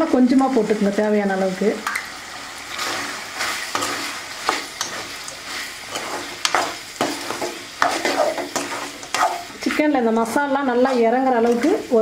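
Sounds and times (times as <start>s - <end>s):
chicken sizzling in oil: 0.0s - 12.0s
metal ladle scraping pan: 2.7s - 12.0s.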